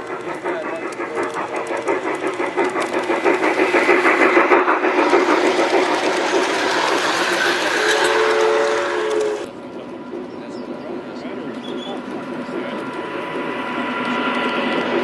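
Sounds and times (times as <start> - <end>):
model train whirring: 0.0 - 15.0
wheels clicking on track: 0.0 - 15.0.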